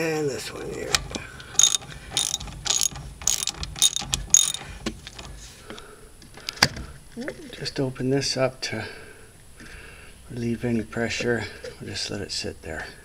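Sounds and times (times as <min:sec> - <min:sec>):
ratchet wrench clicking: 0:00.9 - 0:05.3.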